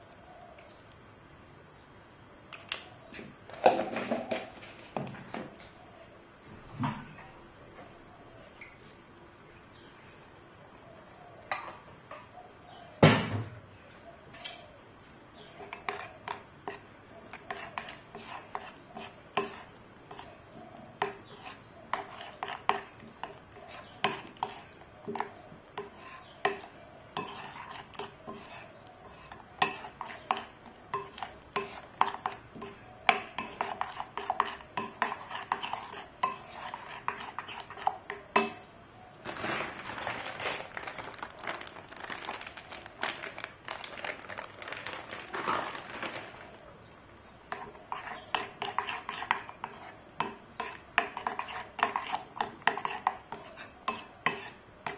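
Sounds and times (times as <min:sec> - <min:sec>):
spoon clinking in ceramic bowl: 0:38.4 - 0:38.7.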